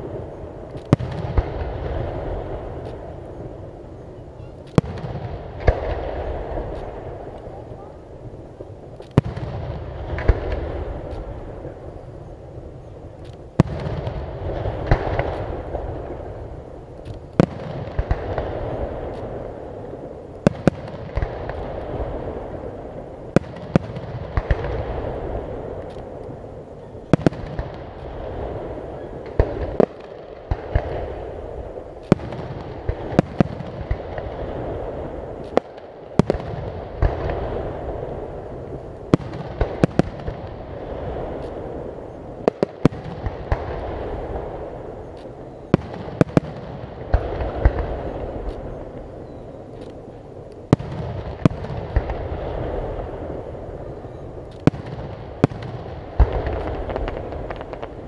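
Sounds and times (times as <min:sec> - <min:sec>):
firework shells bursting: 0:54.2 - 0:58.0.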